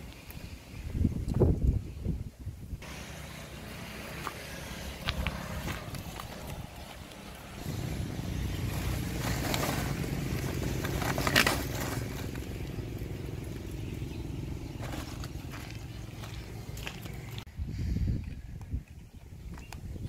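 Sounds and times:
low motor hum: 2.8s - 17.5s
plastic sack rustling: 7.6s - 12.6s, 14.8s - 15.8s.

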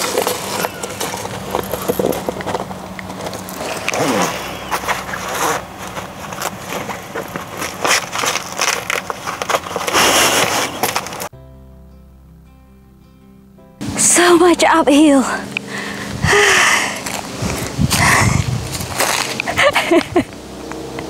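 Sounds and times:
stiff fabric rustling: 0.0s - 11.3s.

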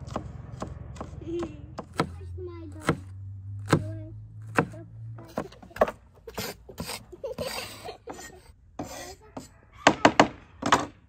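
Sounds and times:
cleaver chopping on wooden board: 0.0s - 6.9s.

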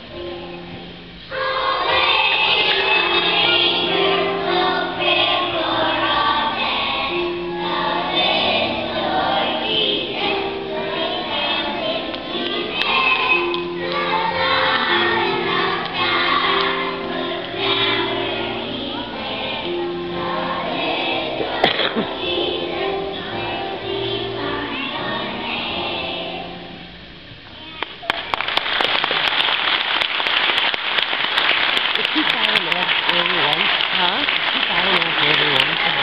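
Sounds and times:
children's choir singing: 0.0s - 26.9s
instrumental accompaniment: 0.0s - 27.0s
audience applause: 28.0s - 36.0s.

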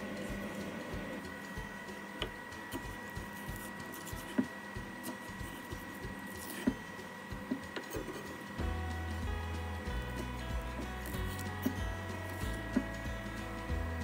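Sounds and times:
knife chopping on wooden board: 2.2s - 8.4s.

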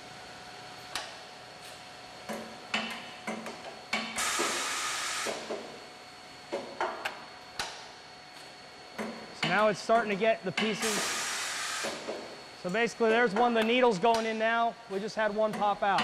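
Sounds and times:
pneumatic actuators clacking: 2.3s - 5.7s, 9.0s - 14.6s
hiss of released air: 4.2s - 5.4s, 10.8s - 12.0s.

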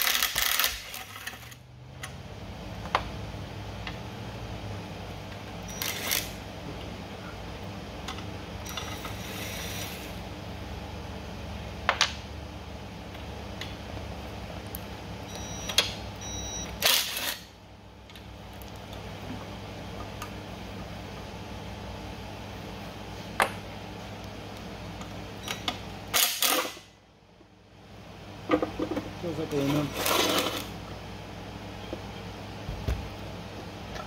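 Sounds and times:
impact wrench rattle: 0.0s - 1.4s
steady low hum: 0.0s - 34.0s.

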